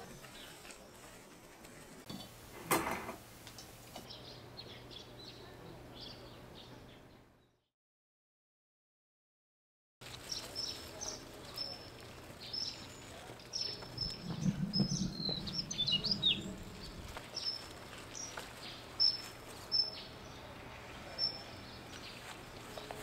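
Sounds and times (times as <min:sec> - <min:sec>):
outdoor background hush: 0:10.0 - 0:23.0
small birds chirping: 0:10.0 - 0:23.0
gliding bird calls: 0:13.8 - 0:17.6
low rumble: 0:13.9 - 0:17.3.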